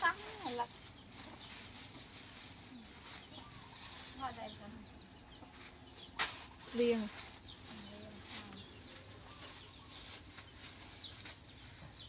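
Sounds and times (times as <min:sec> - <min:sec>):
faint chicken clucks: 0:02.7 - 0:05.6.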